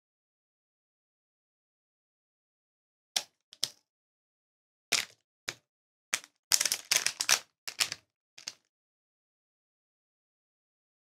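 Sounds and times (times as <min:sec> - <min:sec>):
plastic bag crinkling: 0:06.5 - 0:08.5.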